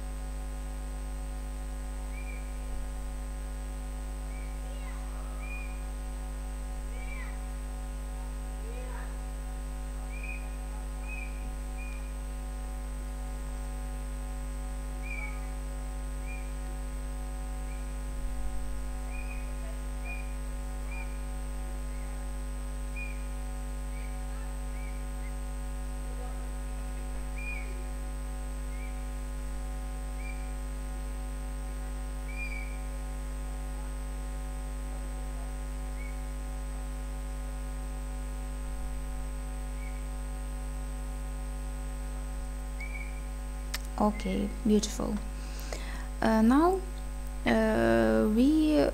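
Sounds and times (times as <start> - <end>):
low electrical hum: 0.0 - 48.9
faint high chirps: 2.1 - 2.6, 4.2 - 6.0, 6.9 - 7.5, 10.0 - 12.2, 15.0 - 15.6, 16.2 - 16.7, 19.1 - 22.3, 22.9 - 25.4, 27.0 - 28.0, 28.7 - 29.1, 30.1 - 30.6, 32.2 - 33.0, 35.9 - 36.4, 39.7 - 40.2, 42.8 - 43.4.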